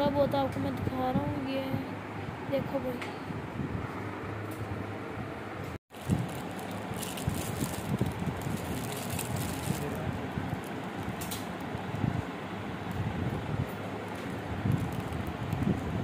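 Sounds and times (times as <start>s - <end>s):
rustling handling noise: 5.9s - 11.9s
light crackles: 5.9s - 12.0s, 13.6s - 15.9s.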